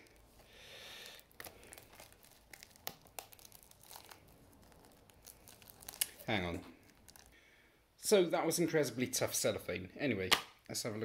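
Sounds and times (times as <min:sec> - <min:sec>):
cellophane crinkling: 0:00.0 - 0:07.4
faint crackles and clicks: 0:01.0 - 0:07.4.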